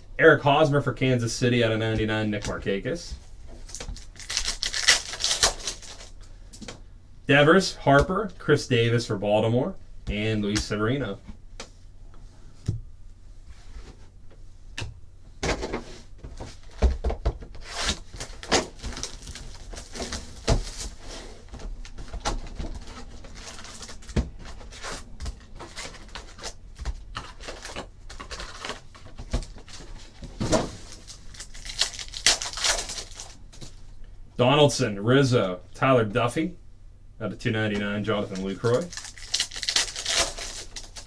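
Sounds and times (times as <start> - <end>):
wrappers crinkling: 3.6 - 6.2, 18.1 - 21.0, 22.8 - 30.1, 30.7 - 33.4, 38.2 - 41.0
foil pack tearing open: 3.9 - 6.1, 17.9 - 21.0, 30.8 - 33.4, 38.3 - 41.0.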